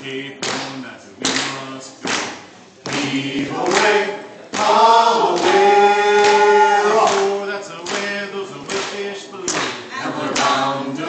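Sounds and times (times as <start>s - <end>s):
group singing a cappella: 0.0s - 11.0s.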